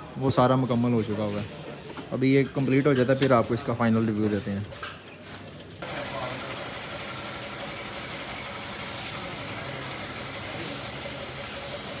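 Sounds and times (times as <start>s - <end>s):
steady hiss: 5.8s - 12.0s.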